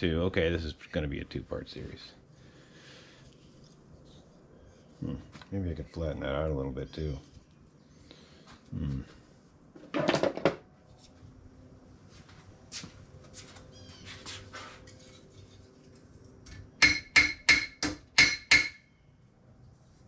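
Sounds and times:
hammer striking steel: 0:16.5 - 0:18.9.

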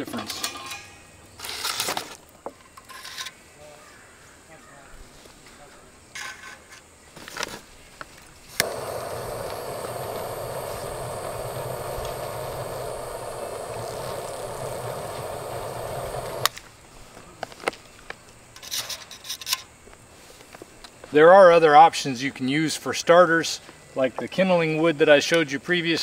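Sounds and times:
torch flame blowing: 0:08.5 - 0:16.6
torch switch click: 0:08.6 - 0:16.5.

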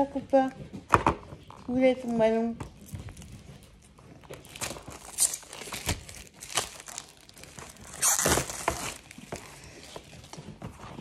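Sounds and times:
packaging rustling and crackling: 0:02.8 - 0:11.0.

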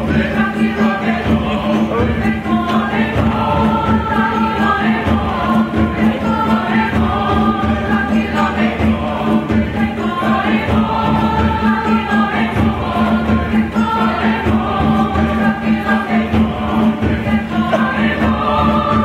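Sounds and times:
choir singing in parts: 0:00.0 - 0:19.0
hand drums beating: 0:00.0 - 0:19.0.

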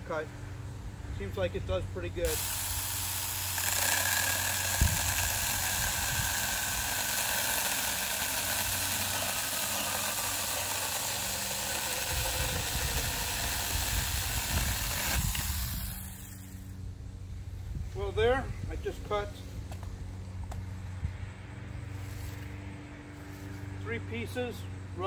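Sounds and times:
mini chainsaw cutting wood: 0:02.2 - 0:16.7.

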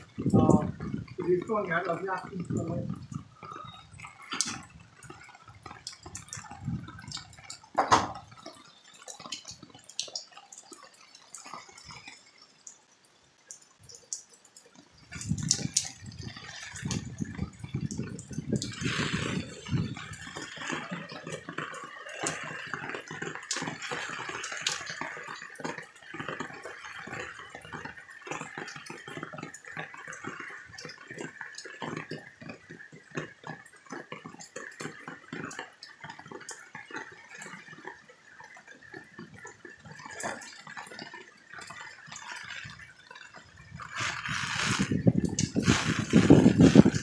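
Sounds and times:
drips spattering on wet surfaces: 0:00.0 - 0:47.0
heavy rain hiss: 0:43.7 - 0:47.0.

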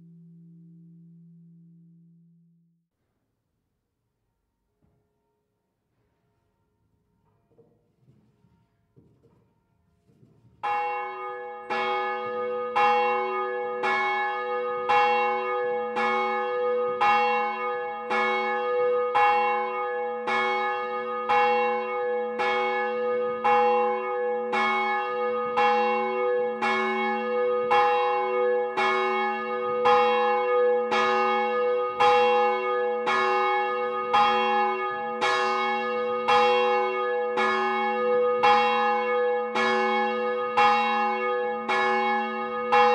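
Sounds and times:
church bell ringing: 0:10.6 - 0:42.9.

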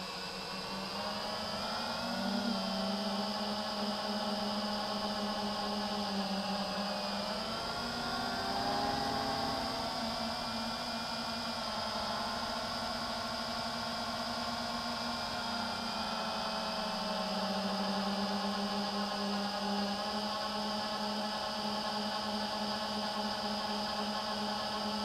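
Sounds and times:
drone propellers whining: 0:00.0 - 0:12.8.

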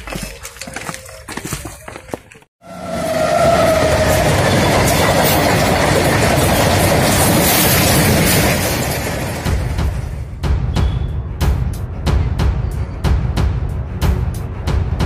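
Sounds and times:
freight train rumbling past: 0:02.6 - 0:15.0.

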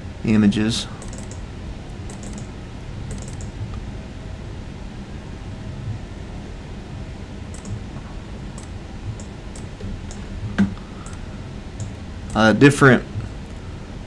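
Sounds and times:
low hum: 0:00.0 - 0:14.0
computer mouse clicks: 0:01.0 - 0:01.4, 0:02.0 - 0:02.5, 0:03.1 - 0:03.8, 0:07.5 - 0:07.9, 0:08.6 - 0:10.3, 0:11.0 - 0:11.2, 0:11.8 - 0:12.4.

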